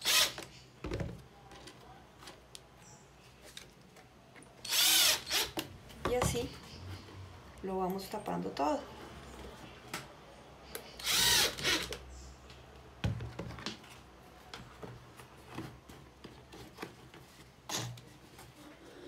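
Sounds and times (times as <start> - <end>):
cordless impact driver: 0.0 - 0.5, 4.6 - 5.6, 11.0 - 12.0.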